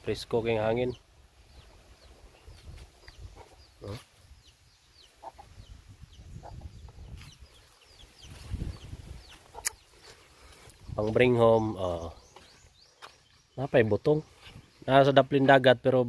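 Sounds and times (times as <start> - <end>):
small birds chirping: 0.0 - 16.0
chicken clucking: 3.0 - 4.1, 5.0 - 10.2.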